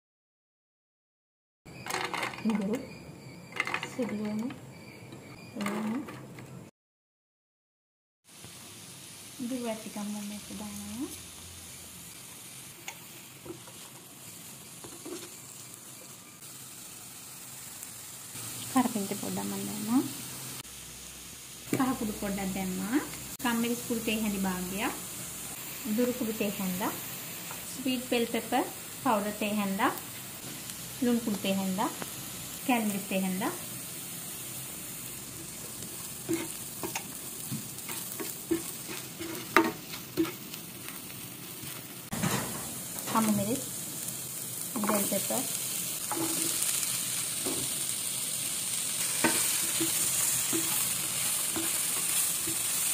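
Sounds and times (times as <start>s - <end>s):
onions sizzling in hot oil: 8.2s - 52.9s
spatula scraping and knocking pan: 14.8s - 15.4s, 35.4s - 41.0s, 46.0s - 46.6s, 49.2s - 52.8s.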